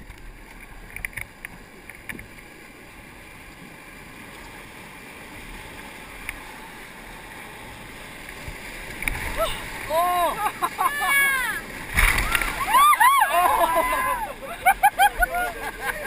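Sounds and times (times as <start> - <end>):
whitewater rapids rushing: 9.1 - 16.0.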